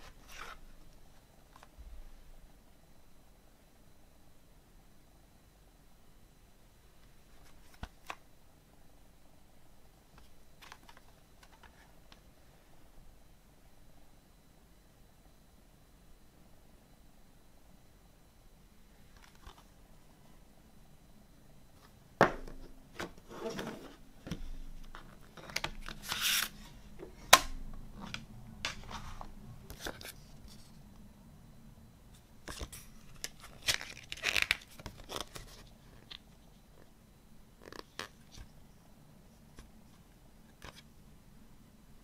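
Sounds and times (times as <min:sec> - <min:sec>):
paper rustling: 0:24.8 - 0:26.7.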